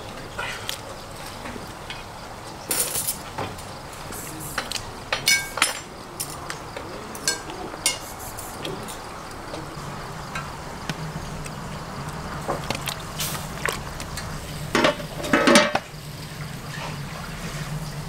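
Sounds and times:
metal utensils clinking on dishes: 2.7 - 3.4, 4.1 - 9.0, 14.7 - 15.8.

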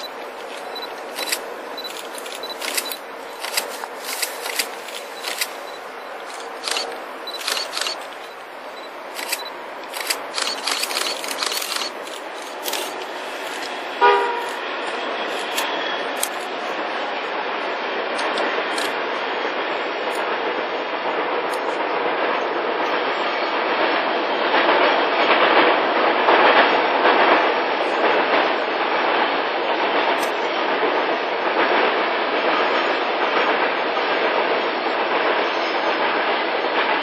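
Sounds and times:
sharp clicks: 0.0 - 13.8, 18.2 - 19.0
train rumble: 0.0 - 37.0
train horn blast: 14.0 - 15.3.

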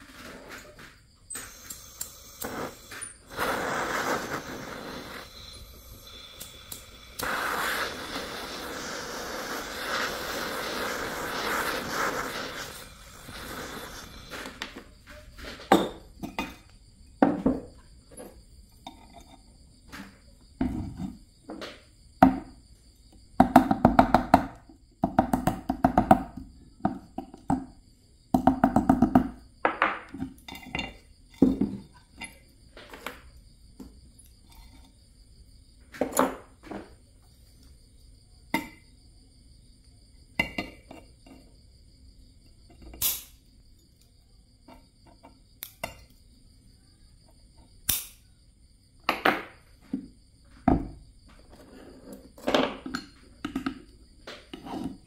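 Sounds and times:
gas torch flame hissing: 0.0 - 16.7, 42.9 - 43.5, 47.8 - 48.3.

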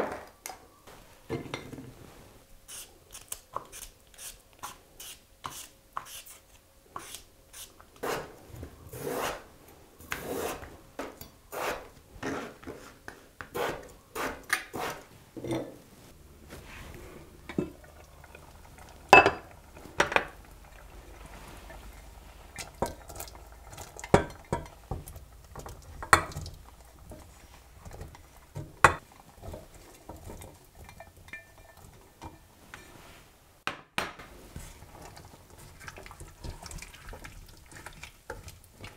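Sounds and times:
low steady hum: 15.6 - 33.6
bowls clinking against metal pot: 17.4 - 20.7, 22.5 - 32.9.

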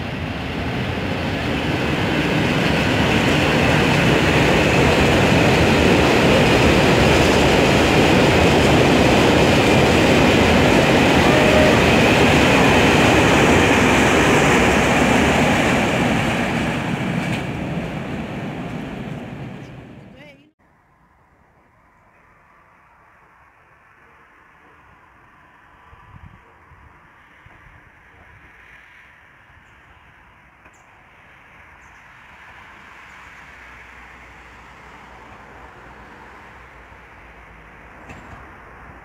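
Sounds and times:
train wheels rumbling on rails: 0.0 - 20.5, 36.8 - 39.0.

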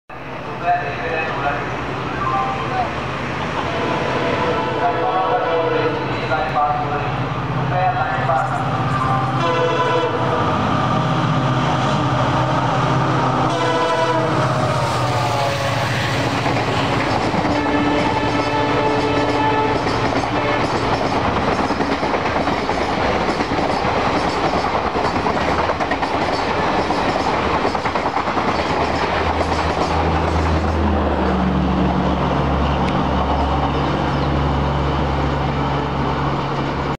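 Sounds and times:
train horn: 3.6 - 6.8, 9.1 - 10.9, 12.2 - 16.4, 17.5 - 20.8
coaches rattling on rails: 16.2 - 31.5.

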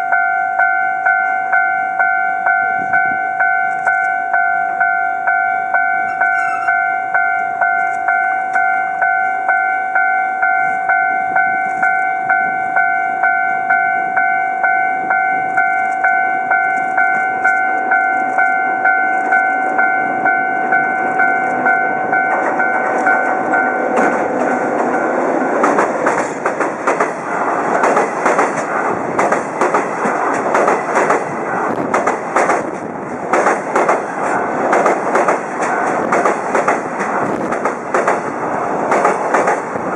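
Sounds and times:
two-tone warning bell ringing: 0.0 - 25.7
train wheels clattering over rail joints: 22.3 - 39.9.

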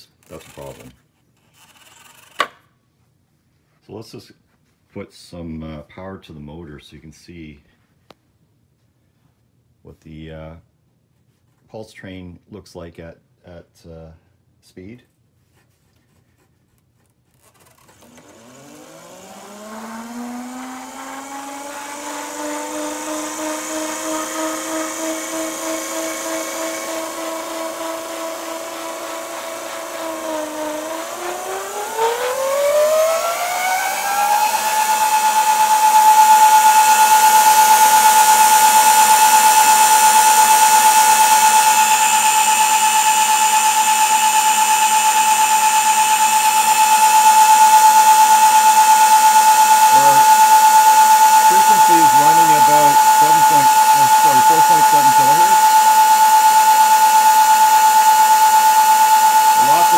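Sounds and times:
electric motor whine: 17.5 - 59.9.

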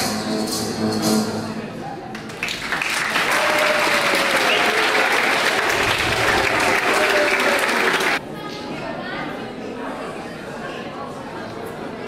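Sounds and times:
audience applauding: 2.1 - 8.2.

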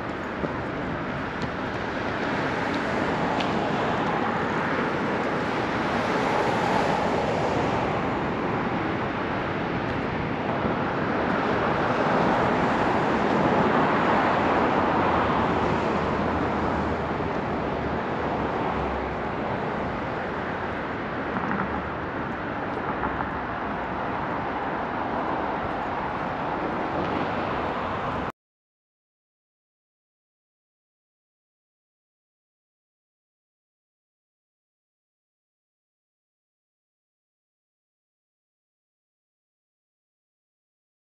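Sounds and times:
cars passing: 0.0 - 28.3
city road traffic: 0.0 - 28.3.

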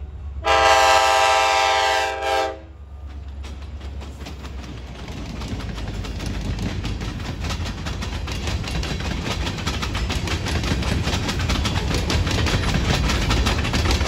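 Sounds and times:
freight train wheels rumbling: 0.0 - 14.0
clicks and clatter of wheels: 3.0 - 14.0.

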